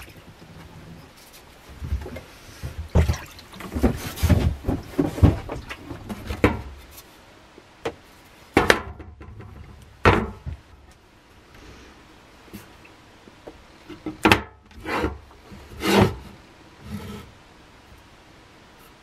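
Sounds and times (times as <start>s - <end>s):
liquid sloshing in plastic tub: 1.9s - 6.1s.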